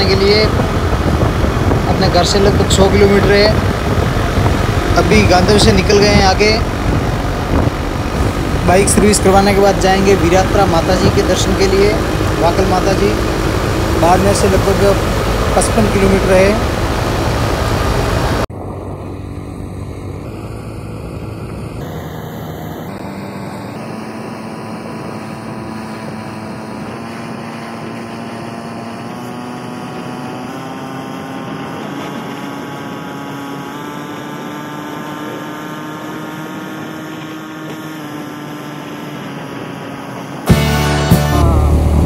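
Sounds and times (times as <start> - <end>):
rushing noise: 0.0 - 28.6
motorcycle engine running: 0.0 - 42.0.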